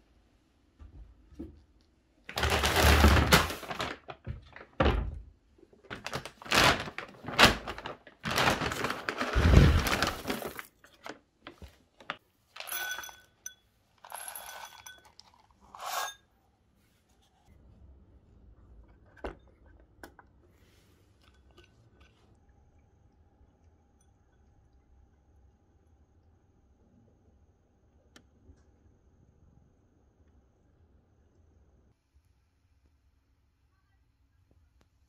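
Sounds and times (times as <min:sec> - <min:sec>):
plastic bag rustling: 0:02.3 - 0:04.8, 0:05.9 - 0:13.1
kibble rattling into glass bowls: 0:12.6 - 0:16.2.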